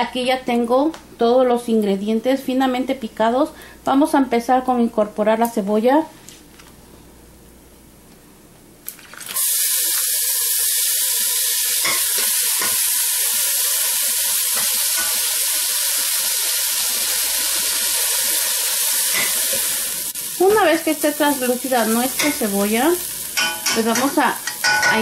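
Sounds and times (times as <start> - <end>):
food sizzling in hot oil: 9.0 - 25.0.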